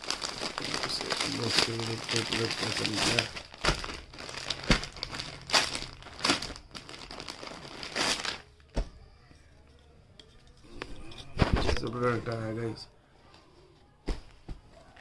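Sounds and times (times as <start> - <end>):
plastic wrapper crinkling: 0.0 - 8.8.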